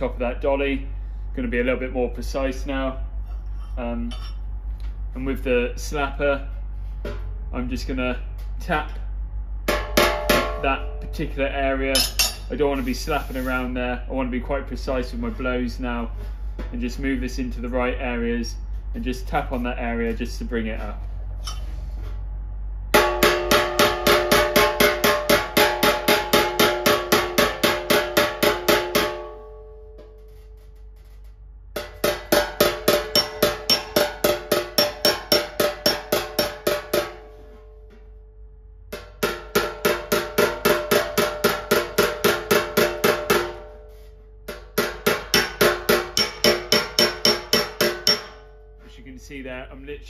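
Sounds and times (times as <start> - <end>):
hammer tapping on steel panel: 31.8 - 37.3, 38.9 - 43.7, 44.5 - 48.4.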